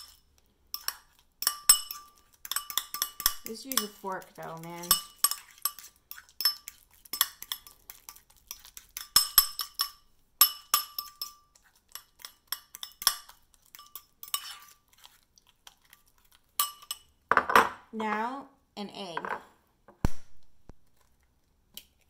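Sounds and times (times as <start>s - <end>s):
fork clinking against ceramic bowl: 0.0s - 4.0s, 4.6s - 14.8s, 16.6s - 17.1s.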